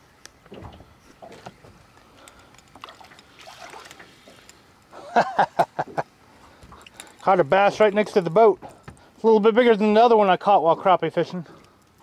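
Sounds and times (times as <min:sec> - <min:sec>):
water splashing: 0:02.8 - 0:04.5.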